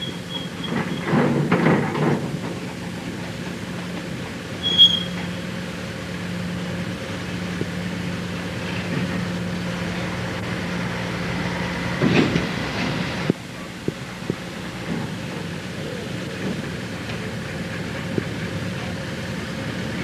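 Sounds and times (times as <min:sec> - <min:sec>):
chain ferry mechanical hum: 0:00.0 - 0:07.7.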